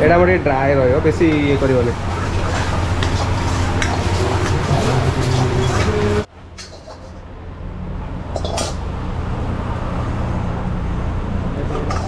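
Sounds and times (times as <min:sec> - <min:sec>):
steel utensils clinking: 0:08.3 - 0:08.8, 0:11.7 - 0:12.0.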